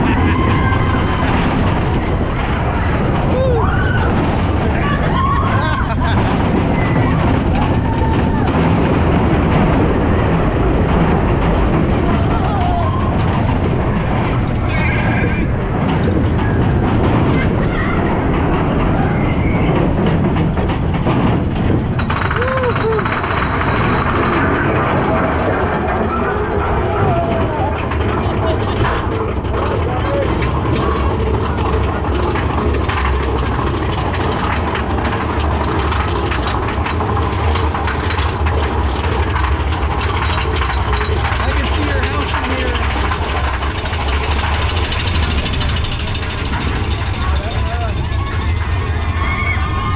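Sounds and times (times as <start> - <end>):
roller coaster rumbling on track: 0.0 - 49.9
lift chain ratchet clicking: 21.9 - 25.0.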